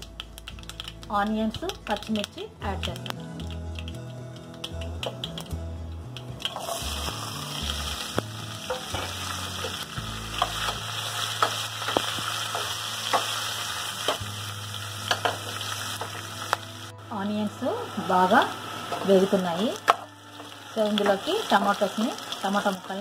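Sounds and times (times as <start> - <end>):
onions sizzling in hot oil: 0.0 - 3.1, 6.2 - 23.0.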